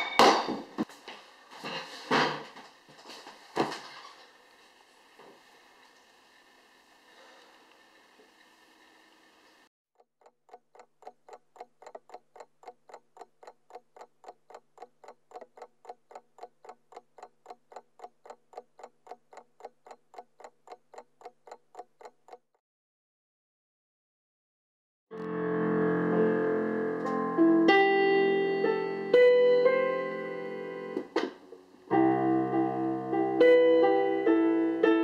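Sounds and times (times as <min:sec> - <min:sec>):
rapid even ticking: 0:10.0 - 0:22.6.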